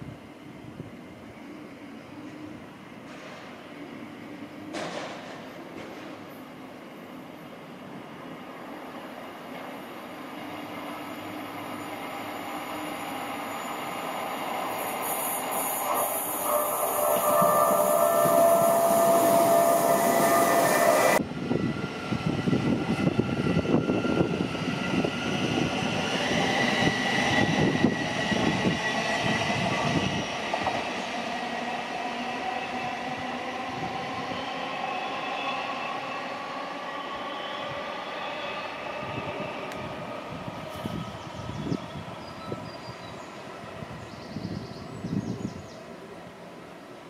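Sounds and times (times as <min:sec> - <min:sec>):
train whining: 0:01.0 - 0:47.0
train wheels clattering over rails: 0:03.0 - 0:03.6, 0:04.7 - 0:06.3.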